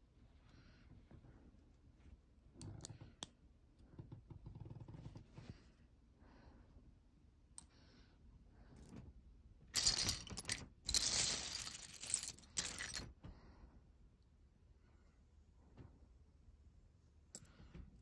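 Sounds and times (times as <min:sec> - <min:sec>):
lego pieces clattering: 0:09.8 - 0:13.1.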